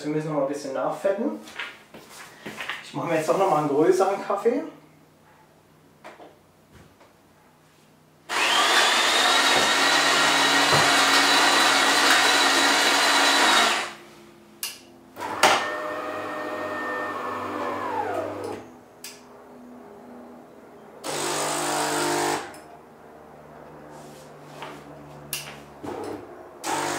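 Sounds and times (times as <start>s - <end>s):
brewing motor running: 8.3s - 14.0s, 15.2s - 18.6s
coffee grinder whining: 8.3s - 14.0s, 15.2s - 18.6s, 21.1s - 22.5s, 26.6s - 26.9s.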